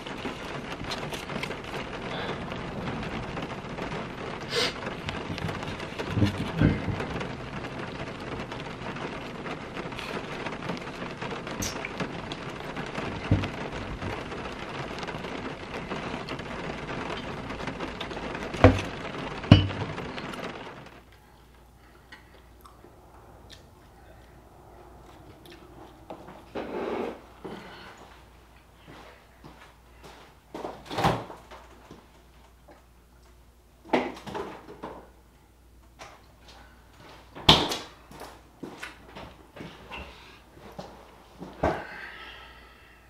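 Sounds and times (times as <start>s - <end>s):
rain on a car: 0.0s - 22.1s.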